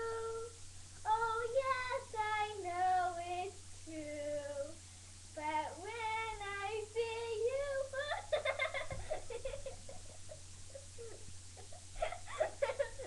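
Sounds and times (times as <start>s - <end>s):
girl singing: 0.0s - 8.4s.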